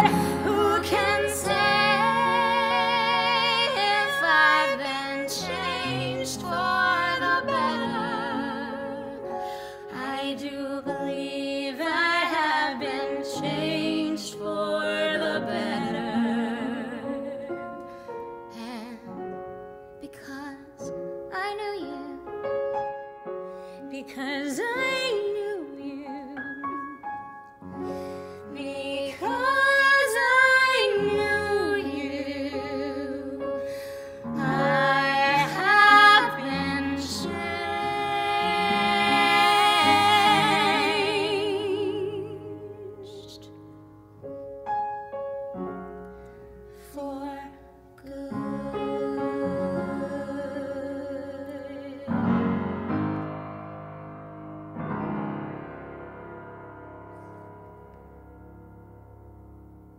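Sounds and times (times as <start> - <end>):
women singing a duet: 0.0 - 17.8, 23.9 - 26.9, 28.4 - 43.5, 46.9 - 52.7
piano and orchestra: 0.0 - 59.9.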